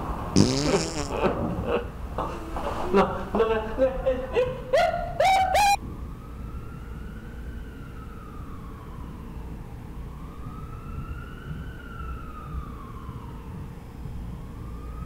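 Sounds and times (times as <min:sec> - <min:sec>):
wailing siren: 0:04.8 - 0:15.0.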